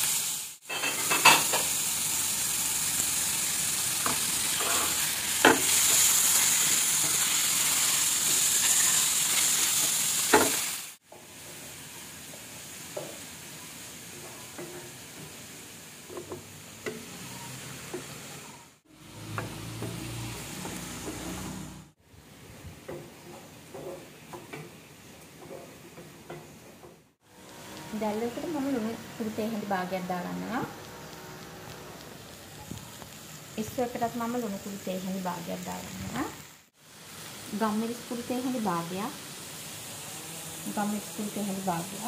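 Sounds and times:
squid sizzling in hot oil: 0:00.0 - 0:22.0, 0:27.2 - 0:42.0
wooden spatula scraping a pan: 0:04.5 - 0:09.7.

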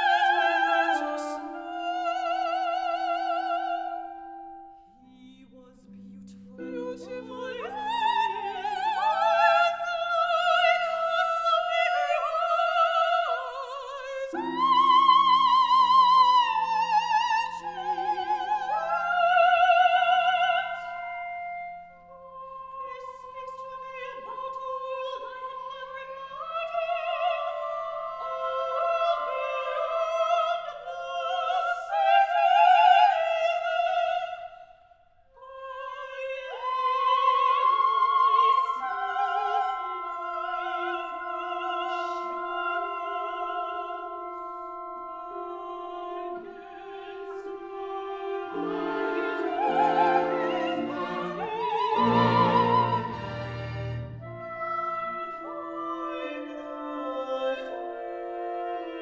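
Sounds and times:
operatic female voices singing: 0:00.0 - 0:03.9, 0:45.1 - 0:59.0
chamber ensemble sustained notes: 0:38.8 - 0:59.0.

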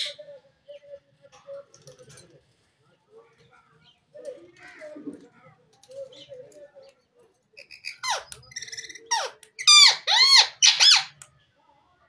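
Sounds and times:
parakeet calling: 0:07.6 - 0:11.2
parakeet squawks: 0:07.6 - 0:11.2.

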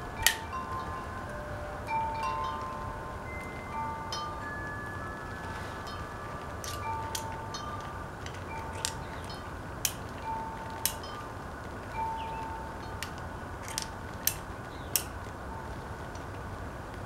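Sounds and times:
light ringing tones: 0:00.0 - 0:16.1
revolver metallic clicks: 0:06.4 - 0:11.3, 0:12.2 - 0:15.3.

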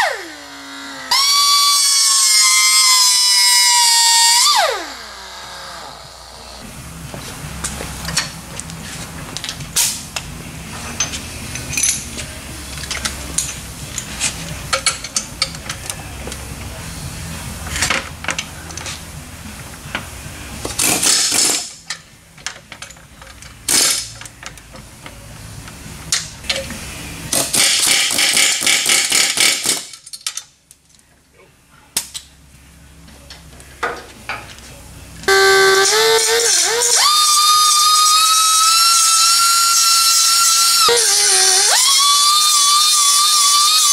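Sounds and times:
metal clinks and knocks: 0:10.8 - 0:16.0
pneumatic air hammer rattling: 0:20.6 - 0:24.4, 0:26.1 - 0:30.5, 0:35.3 - 0:43.9.

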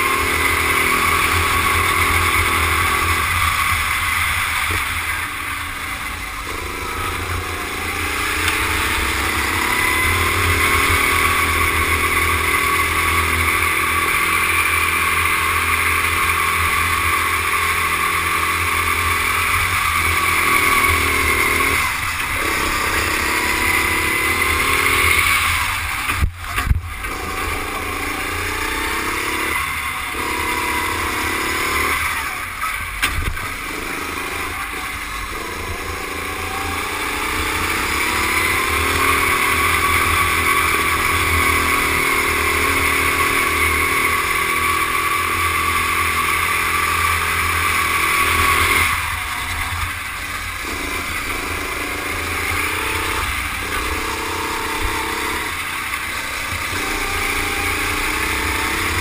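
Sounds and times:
kart engine running hard: 0:00.0 - 0:59.0.

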